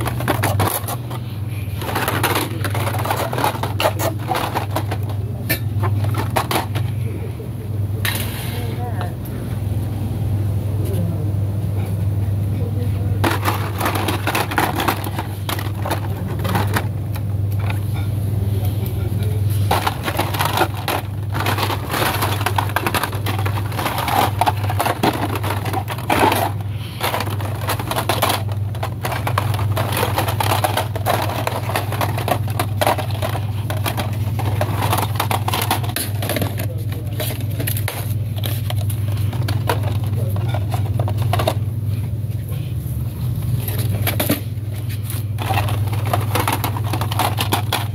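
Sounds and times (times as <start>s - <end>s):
plastic packaging clacking and crinkling: 0.0s - 7.1s, 13.2s - 18.1s, 18.8s - 41.6s, 43.4s - 47.9s
steady low hum: 0.0s - 47.9s.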